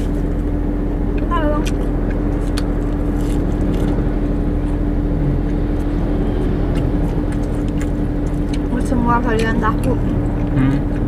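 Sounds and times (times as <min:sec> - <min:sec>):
car engine idling: 0:00.0 - 0:11.0
chewing clicks: 0:01.6 - 0:04.0, 0:06.7 - 0:08.7.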